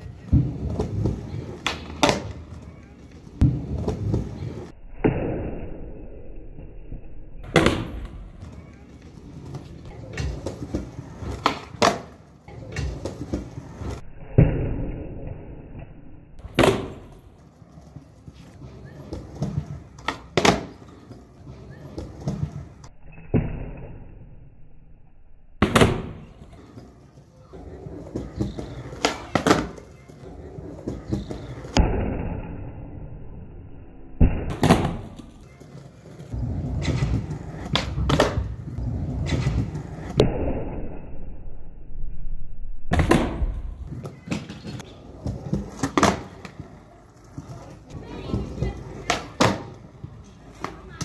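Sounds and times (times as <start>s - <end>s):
skateboard wheels rolling on concrete: 0.0s - 5.3s, 6.1s - 24.5s, 25.6s - 40.8s, 42.9s - 51.0s
skateboard tail popping and landing: 0.1s - 2.5s, 7.4s - 8.6s, 9.3s - 15.4s, 16.4s - 17.3s, 18.3s - 24.1s, 25.6s - 32.5s, 34.2s - 40.8s, 42.9s - 50.9s.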